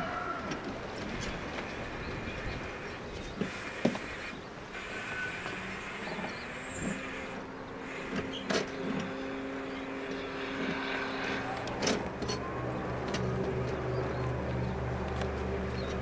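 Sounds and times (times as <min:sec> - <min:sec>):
distant engine drone: 0:00.0 - 0:16.0
low hum: 0:04.1 - 0:16.0.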